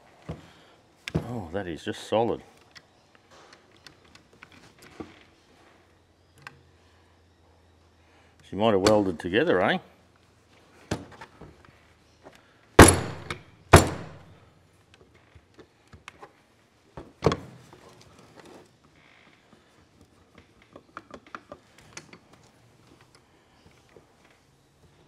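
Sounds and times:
heavy metal knocks ringing: 12.8 - 14.2.

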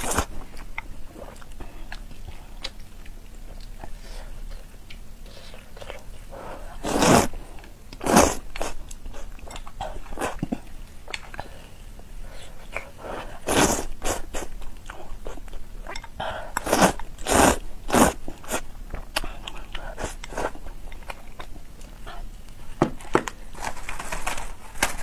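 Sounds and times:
slurping noodles: 6.6 - 7.4, 8.0 - 8.8, 13.1 - 14.5, 16.6 - 18.6
wet chewing and mouth clicks: 7.6 - 11.5, 13.5 - 22.2.

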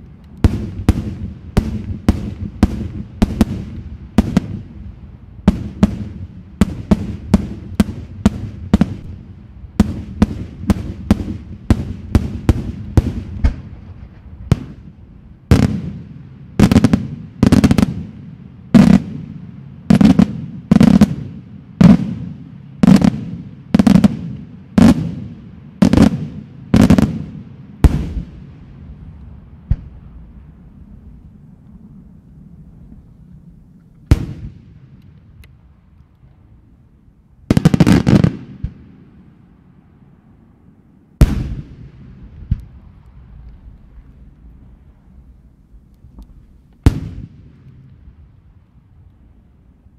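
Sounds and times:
fireworks bangs: 0.0 - 4.8, 5.4 - 31.2, 34.1 - 35.3, 37.5 - 39.2, 41.2 - 45.4, 46.1 - 48.3.

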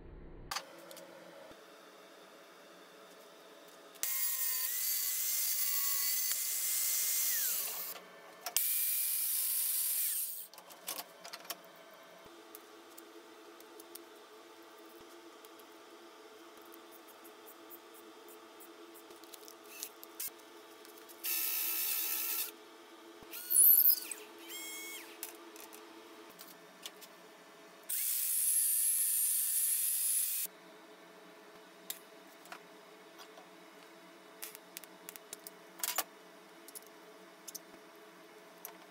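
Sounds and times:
power drill whirring: 7.0 - 7.9.

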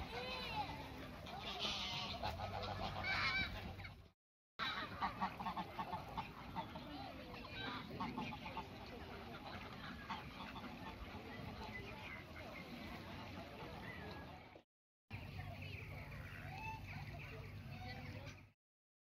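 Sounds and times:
flamingos and ducks calling: 0.0 - 4.0, 4.6 - 14.4, 15.6 - 18.4
geese honking: 0.0 - 4.0, 4.6 - 11.9.

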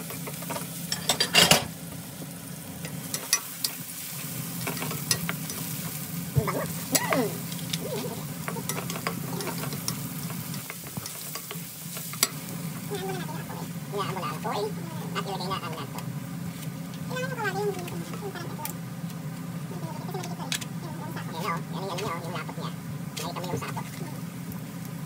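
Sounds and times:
garlic and onion sizzling in oil: 0.0 - 25.0
spatula scraping a wok: 6.7 - 13.6.

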